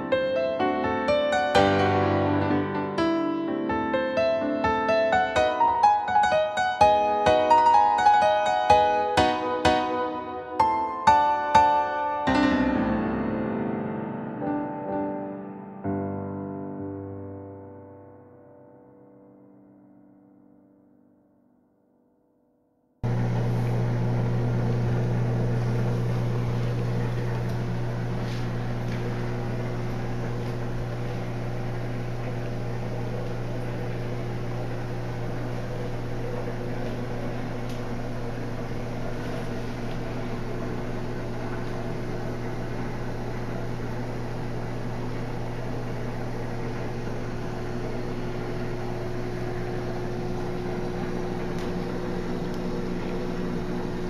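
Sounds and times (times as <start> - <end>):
aquarium pump hum: 23.0 - 54.0.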